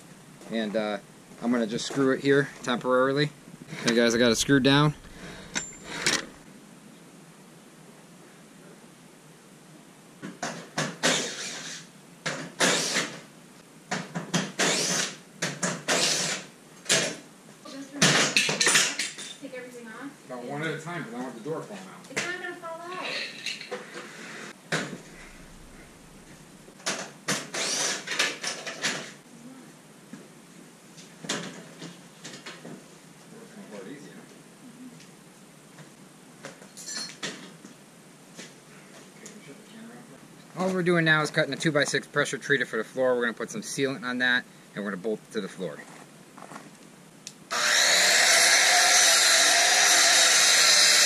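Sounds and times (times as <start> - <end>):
miter saw cutting board: 3.9 - 6.4, 47.5 - 51.0.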